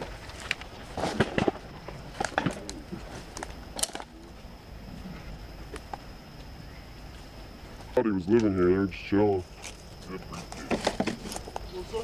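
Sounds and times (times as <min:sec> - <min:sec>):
twigs cracking: 0:00.0 - 0:04.2.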